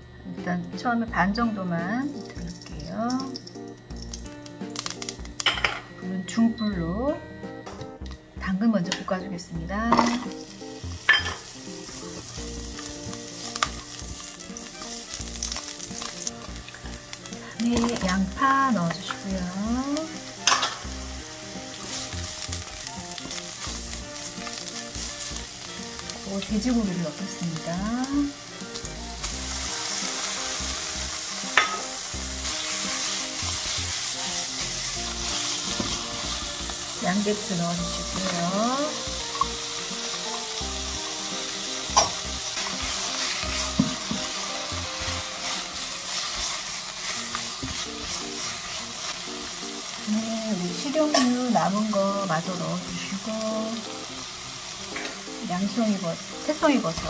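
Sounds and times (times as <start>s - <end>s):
carrots sizzling in oil: 0.8s - 5.8s, 9.6s - 57.0s
spatula scraping a pan: 42.0s - 49.2s.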